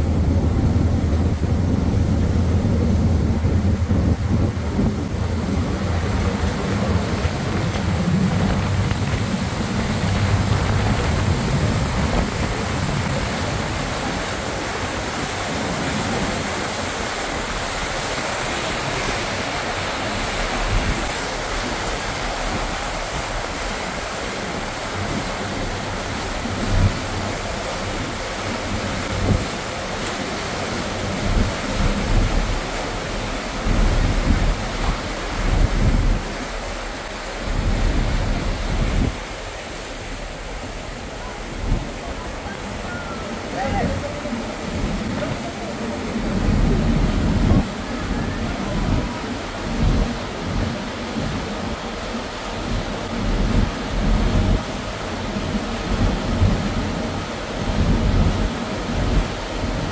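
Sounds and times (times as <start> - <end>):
ferry wake rushing: 0.0 - 59.9
wind buffeting microphone: 0.0 - 59.9.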